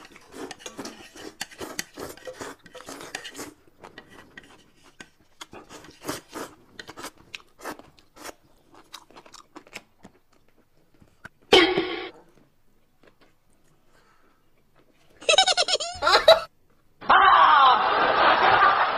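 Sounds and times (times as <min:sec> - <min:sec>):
slurping and chewing: 0:00.0 - 0:11.4.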